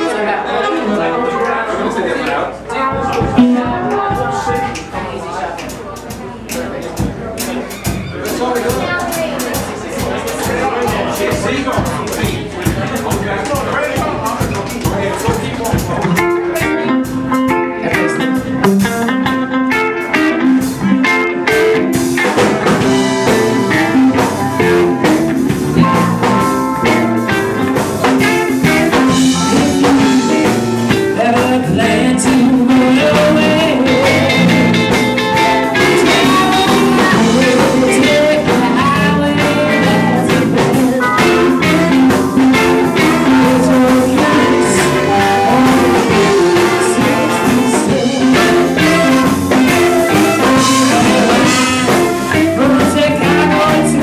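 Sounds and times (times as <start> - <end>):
blues-rock band playing: 2.7 - 54.0
woman singing: 29.1 - 34.8, 35.4 - 54.0.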